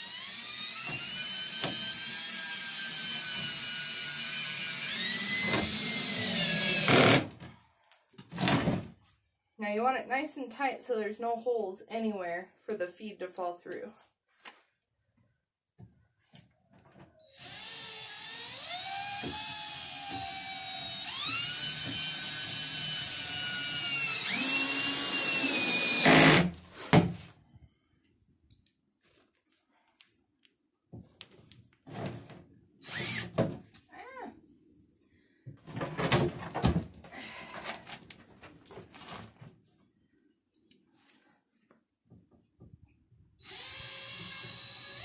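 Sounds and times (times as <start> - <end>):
cordless drill motor whine: 0.0 - 7.2, 17.2 - 26.5, 32.8 - 33.2, 43.4 - 45.0.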